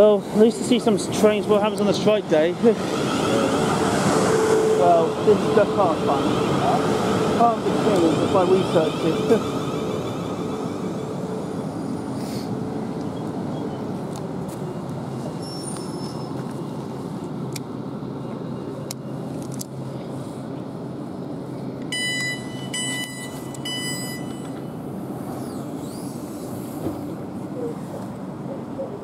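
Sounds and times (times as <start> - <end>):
electric train hum: 0.0 - 29.0
door warning beeper: 21.9 - 24.6.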